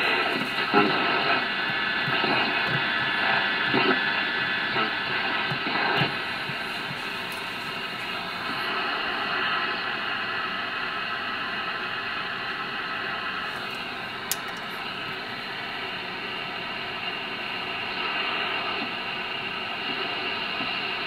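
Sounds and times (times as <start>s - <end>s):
radio static hiss: 0.0s - 21.0s
sharp click: 14.3s - 14.8s.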